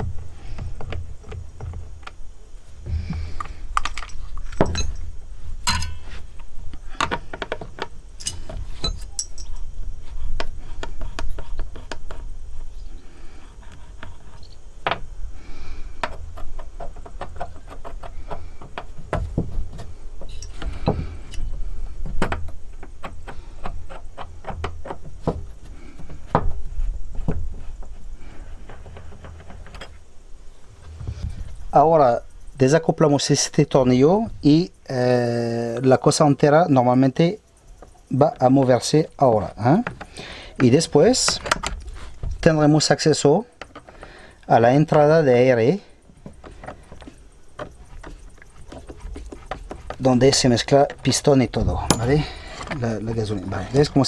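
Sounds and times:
tools tapping and knocking: 0:00.0 - 0:02.2, 0:02.8 - 0:06.2, 0:06.8 - 0:09.7, 0:16.0 - 0:28.0, 0:37.8 - 0:42.8, 0:46.2 - 0:54.0
light metallic clinks: 0:03.8 - 0:06.1, 0:08.2 - 0:09.7, 0:51.8 - 0:52.5.

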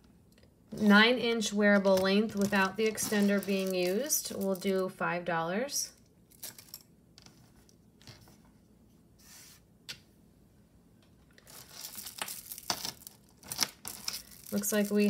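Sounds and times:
jewelry clicking and rustling: 0:01.8 - 0:04.9, 0:06.0 - 0:08.4, 0:11.3 - 0:15.0.

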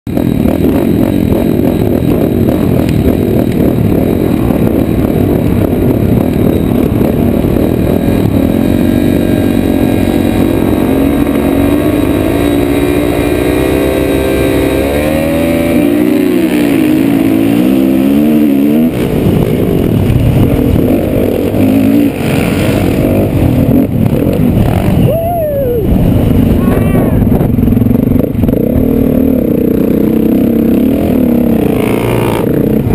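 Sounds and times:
dirt bike engines revving: 0:00.1 - 0:32.9.

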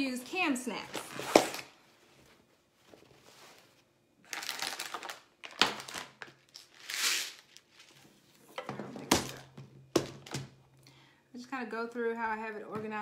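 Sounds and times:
plastic bag crinkling: 0:04.2 - 0:08.0.

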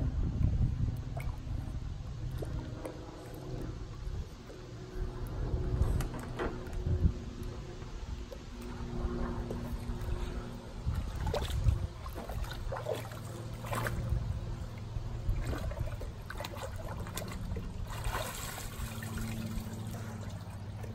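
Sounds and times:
low steady hum: 0:00.0 - 0:20.9
dog splashing through water: 0:09.5 - 0:20.9.

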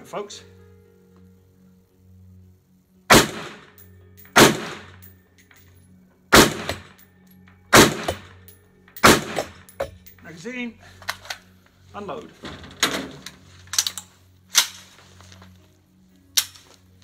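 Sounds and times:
rifle shots with echo: 0:03.1 - 0:05.0, 0:06.3 - 0:07.0, 0:07.7 - 0:08.4, 0:09.0 - 0:09.7.

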